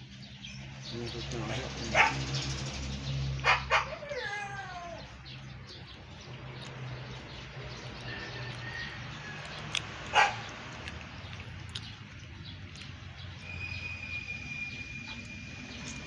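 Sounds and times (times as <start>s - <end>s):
dog barking: 1.9s - 2.5s, 3.4s - 4.4s, 10.1s - 10.5s.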